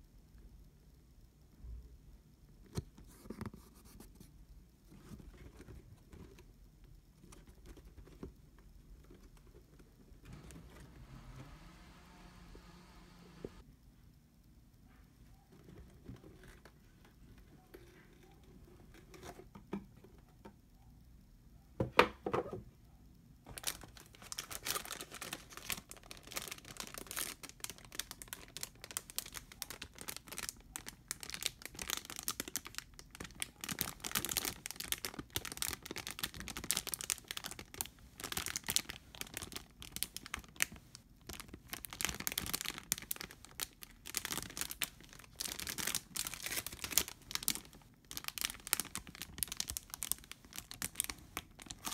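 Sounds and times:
plastic bags crinkling: 0:23.5 - 0:51.9.

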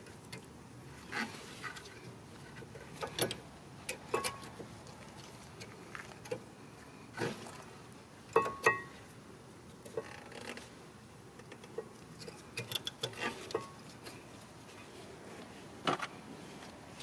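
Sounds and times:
brake pads clinking and scraping: 0:01.1 - 0:06.5, 0:08.3 - 0:09.1, 0:11.4 - 0:14.9.

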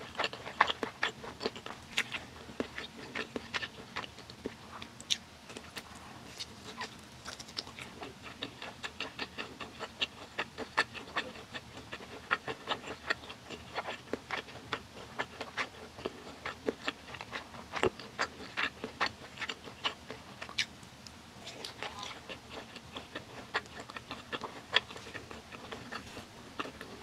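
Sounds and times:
close-up chewing: 0:00.0 - 0:20.8, 0:21.4 - 0:27.0.

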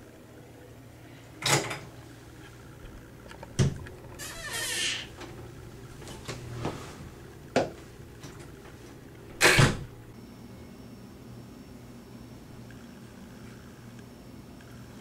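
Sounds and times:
door thump: 0:09.4 - 0:09.9
sharp door clicks: 0:09.4 - 0:09.9.

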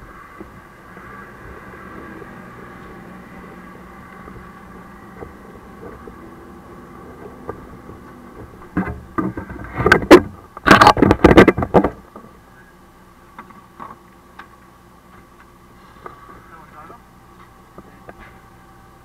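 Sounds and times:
truck engine droning: 0:00.0 - 0:10.6.

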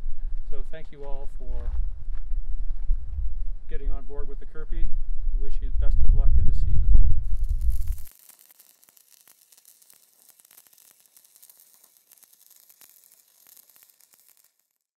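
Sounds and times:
faint crackling hiss: 0:07.2 - 0:15.0
small clicks: 0:07.4 - 0:14.9.

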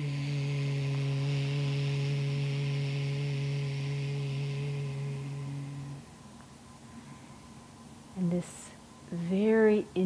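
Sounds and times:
woman holding low breathy tone: 0:00.0 - 0:07.7.

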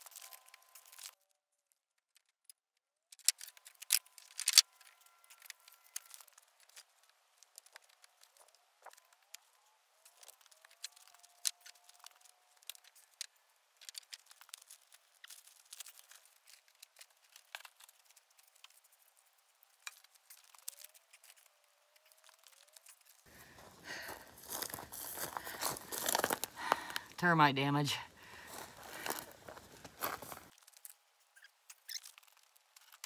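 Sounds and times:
wood crackling and crunching: 0:00.0 - 0:02.4, 0:03.1 - 0:33.0.

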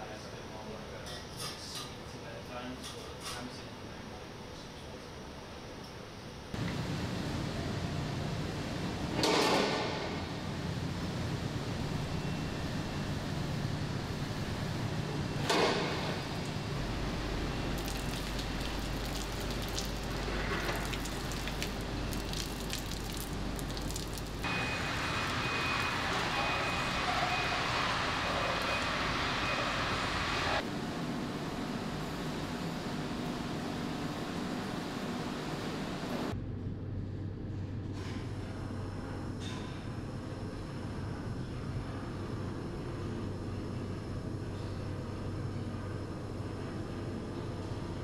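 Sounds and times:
machine hum and hiss: 0:00.0 - 0:48.0.

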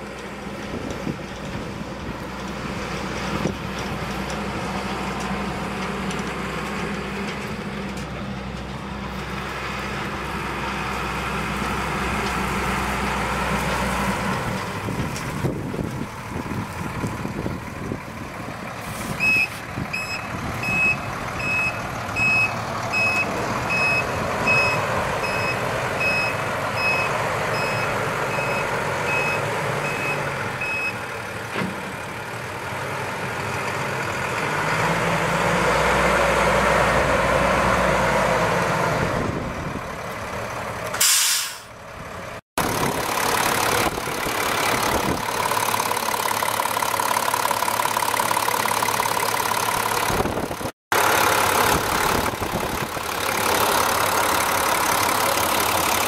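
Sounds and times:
diesel truck engine: 0:00.0 - 0:56.0
air brake hiss: 0:18.8 - 0:19.6, 0:41.0 - 0:41.8
truck backup alarm beeping: 0:19.0 - 0:31.2.

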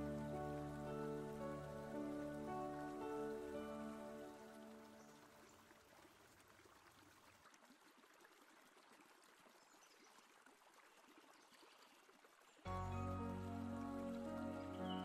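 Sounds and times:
background music: 0:00.0 - 0:05.2, 0:12.7 - 0:15.0
faint trickling water: 0:00.0 - 0:15.0.

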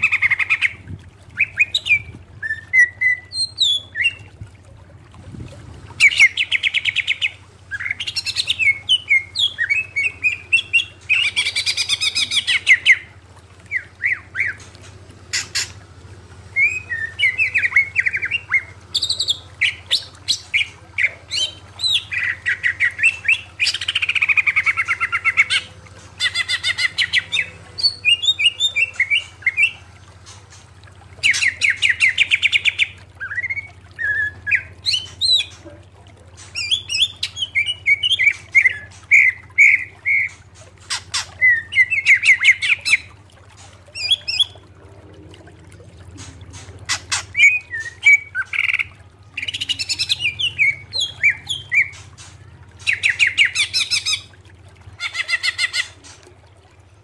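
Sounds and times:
steady low hum: 0:00.0 - 0:55.0
bird singing rattling trills: 0:06.0 - 0:13.1, 0:13.7 - 0:15.8, 0:16.5 - 0:30.6, 0:31.2 - 0:35.6, 0:36.4 - 0:43.1, 0:46.2 - 0:54.3
bird chirps and whistles: 0:16.6 - 0:20.7.

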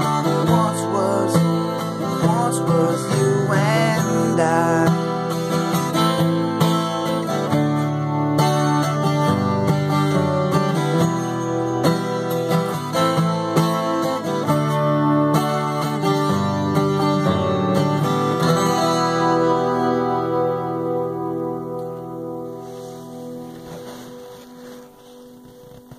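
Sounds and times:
acoustic guitar strummed: 0:00.0 - 0:25.9.

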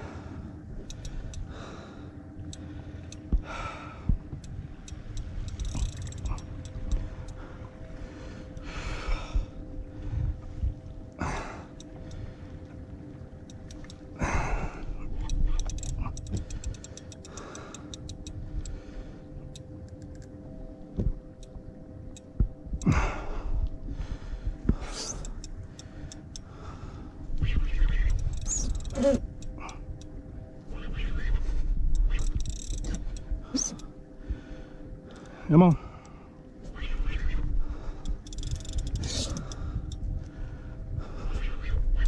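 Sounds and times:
fishing reel clicking: 0:00.8 - 0:01.5, 0:04.4 - 0:07.4, 0:13.4 - 0:14.0, 0:15.2 - 0:18.8, 0:19.5 - 0:20.4, 0:24.8 - 0:26.5, 0:27.6 - 0:30.2, 0:30.9 - 0:33.9, 0:37.0 - 0:40.1
wind on microphone: 0:27.2 - 0:33.9, 0:36.7 - 0:42.0.

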